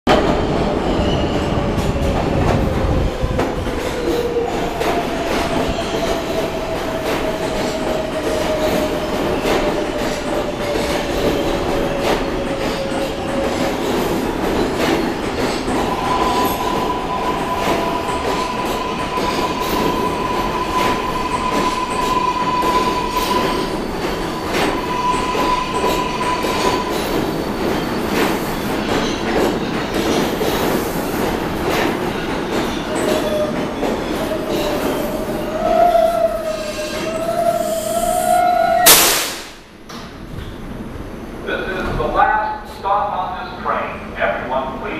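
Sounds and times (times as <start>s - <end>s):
subway train wheels rumbling on rail: 0.1s - 44.9s
high brake squeal: 15.8s - 27.4s, 35.6s - 39.3s.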